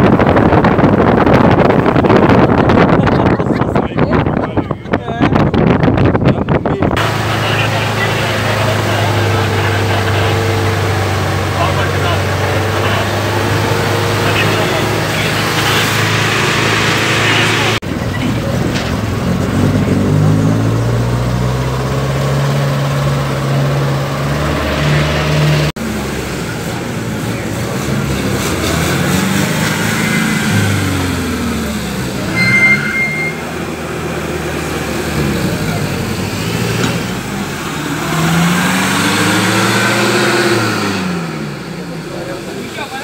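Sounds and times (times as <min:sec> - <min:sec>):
jeep engines manoeuvring: 0:00.0 - 0:43.0
engine drone: 0:07.0 - 0:43.0
high beep: 0:32.2 - 0:33.6.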